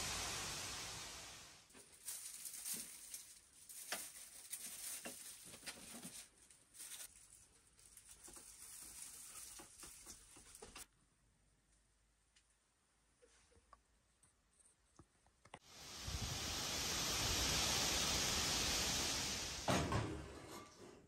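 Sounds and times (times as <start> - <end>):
dry garlic skins rustling: 1.7 - 10.8.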